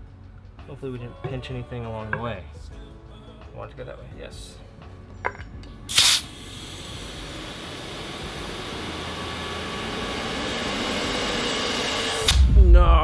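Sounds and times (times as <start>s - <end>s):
electric air pump running: 5.9s - 12.5s.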